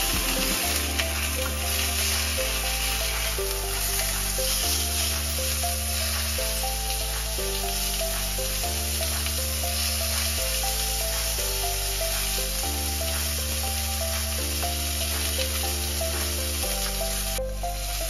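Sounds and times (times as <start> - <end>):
background music: 0.0 - 18.0
steaks sizzling in a pan: 9.0 - 11.1.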